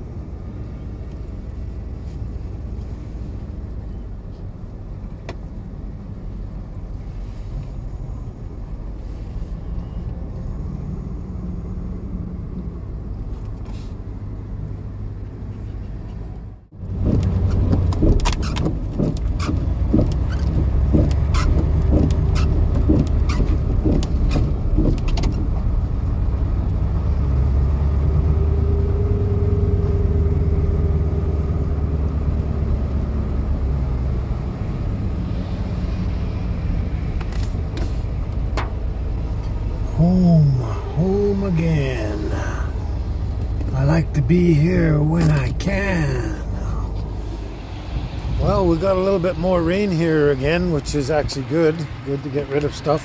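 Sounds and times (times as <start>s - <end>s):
truck engine and road noise: 0.0s - 53.0s
ticks and taps: 17.1s - 25.4s.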